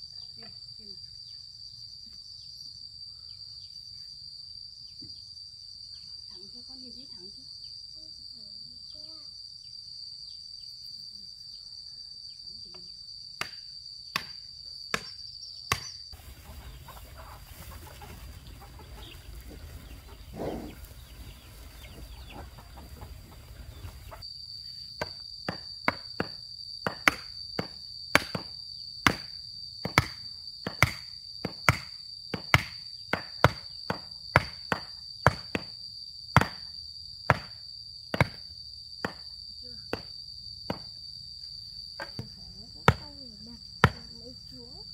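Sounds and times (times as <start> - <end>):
insects droning: 0.0 - 44.9
hand tool striking ground: 14.2 - 16.9, 25.0 - 28.5, 29.1 - 35.7
rooster crowing: 16.2 - 24.2.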